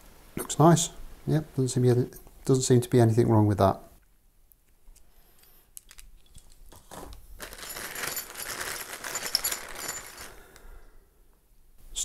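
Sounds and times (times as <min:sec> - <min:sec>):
plastic bag crinkling: 0:05.8 - 0:10.6.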